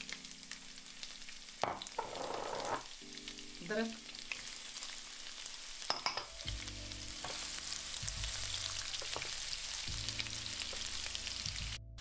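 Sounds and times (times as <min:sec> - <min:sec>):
garlic sizzling in hot oil: 0:00.0 - 0:11.8
wooden spatula scraping wok: 0:01.9 - 0:02.9.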